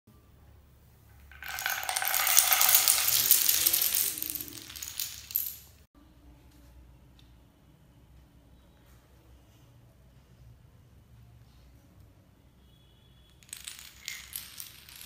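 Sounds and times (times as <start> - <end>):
dominoes clattering on tile floor: 1.3 - 5.8, 13.4 - 15.0.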